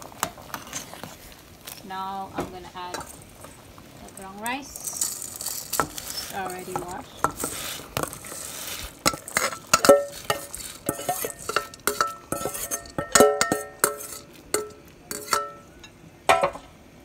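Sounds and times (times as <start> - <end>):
metal spoon scraping steel bowl: 4.8 - 15.6.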